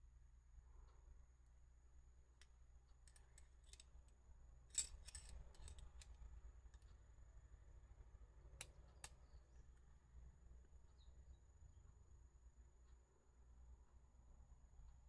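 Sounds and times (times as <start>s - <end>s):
metal tool clicks: 3.1s - 4.0s, 4.7s - 6.9s.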